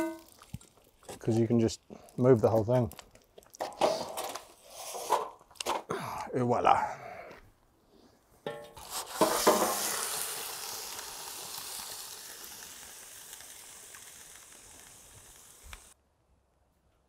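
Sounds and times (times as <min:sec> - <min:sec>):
chicken sizzling on hot metal: 0:08.8 - 0:16.0.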